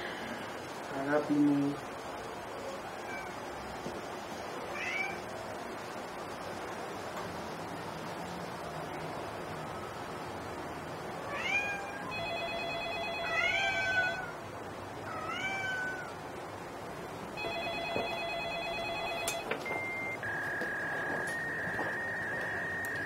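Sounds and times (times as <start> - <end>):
cat meowing: 4.7 - 5.2, 11.3 - 12.1, 13.2 - 14.4, 15.0 - 16.2
steady high tone: 12.0 - 14.4, 17.4 - 23.0
telephone ringing: 12.0 - 14.4, 17.4 - 23.0.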